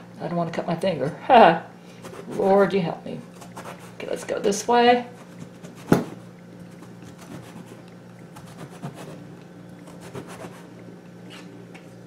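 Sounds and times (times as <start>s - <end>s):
knife scraping through eggplant: 2.0s - 2.6s, 3.3s - 4.1s, 5.1s - 7.8s, 8.4s - 9.2s, 9.8s - 10.7s.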